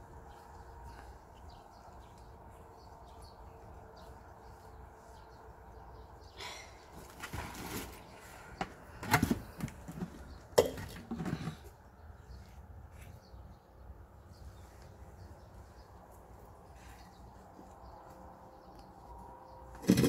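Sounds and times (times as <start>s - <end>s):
pot and soil knocks and rustles: 7.0s - 11.8s, 19.7s - 20.0s.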